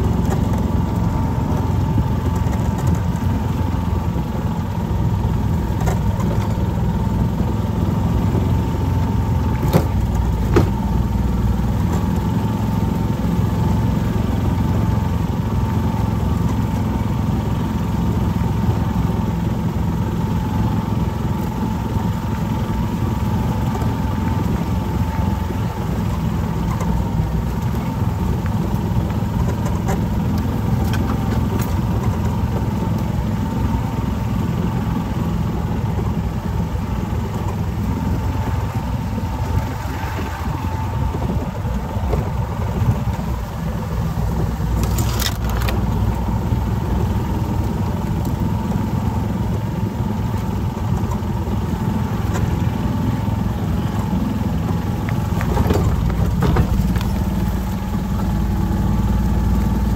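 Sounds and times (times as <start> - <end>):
vehicle engine running: 0.0 - 59.9
steady whine: 15.2 - 59.9.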